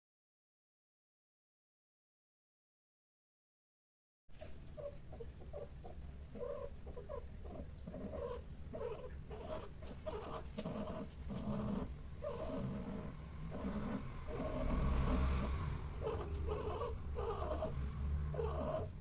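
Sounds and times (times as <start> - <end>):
cats making low calls: 4.7 - 19.0.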